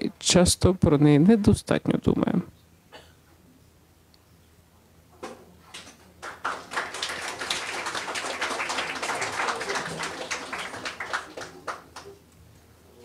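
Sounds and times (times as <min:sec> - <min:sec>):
audience applauding: 0:05.8 - 0:12.2.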